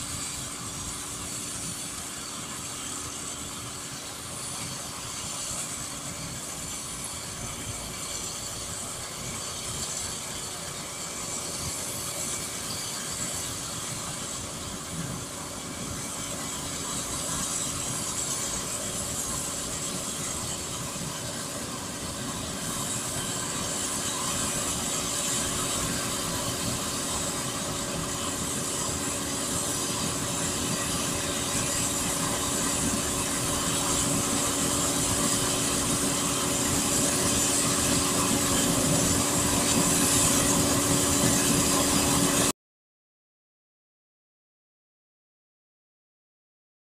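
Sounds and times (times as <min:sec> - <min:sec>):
combine harvester running: 0:00.0 - 0:42.5.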